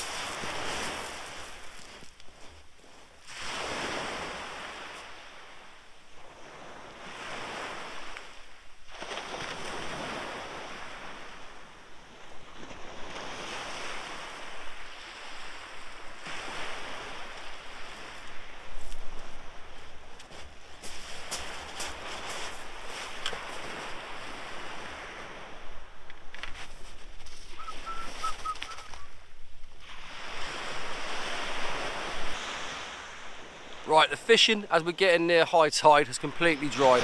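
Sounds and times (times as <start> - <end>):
waves breaking on shingle: 0.0 - 2.6, 20.2 - 25.2.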